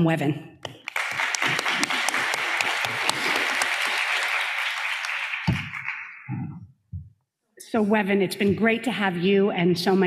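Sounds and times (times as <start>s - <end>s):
audience applauding: 0.7s - 6.3s.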